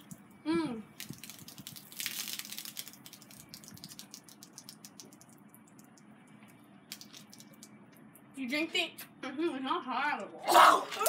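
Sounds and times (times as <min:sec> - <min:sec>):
soda fizzing and foaming: 0:01.0 - 0:06.0, 0:06.9 - 0:07.7
small crackling pops: 0:01.0 - 0:08.1.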